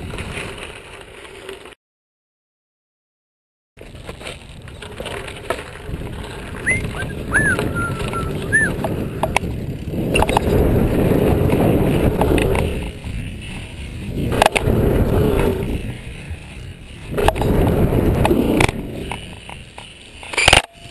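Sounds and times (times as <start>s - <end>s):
bike tyres rumbling on dirt: 0.0s - 1.8s, 3.8s - 20.9s
bike clacking over bumps: 3.8s - 20.9s
wind rush: 5.8s - 19.2s
whistle-like tones: 6.6s - 8.8s.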